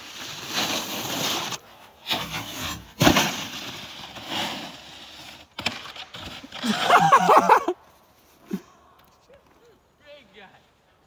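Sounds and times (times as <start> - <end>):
snowboard scraping across snow: 0.0 - 7.4.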